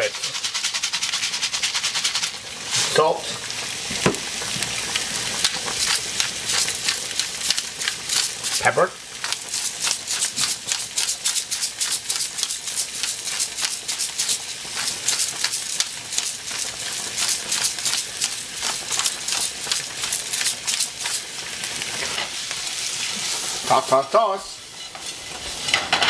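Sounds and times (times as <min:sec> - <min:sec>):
pepper grinder crunching clicks: 0:17.2 - 0:21.2.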